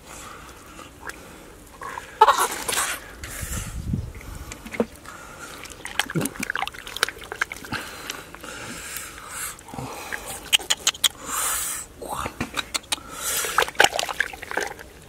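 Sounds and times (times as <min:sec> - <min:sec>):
muddy water sloshing: 0:00.2 - 0:11.3, 0:12.3 - 0:15.0
small splashes: 0:04.2 - 0:11.2, 0:12.5 - 0:15.0.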